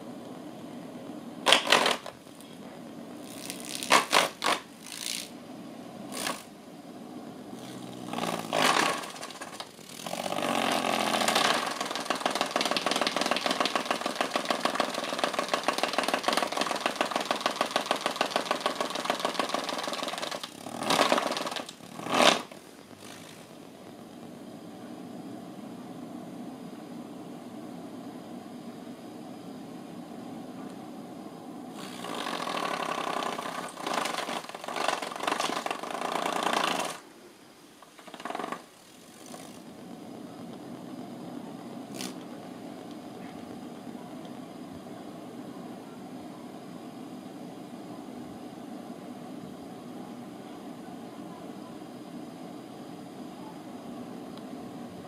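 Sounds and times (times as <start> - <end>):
fan rattling: 0.0 - 24.6, 31.7 - 37.1, 37.8 - 44.6
electric fan running: 0.0 - 55.0
cat scraping against fan: 6.1 - 6.6, 7.5 - 24.2, 31.7 - 37.0, 37.8 - 40.8, 41.8 - 42.6.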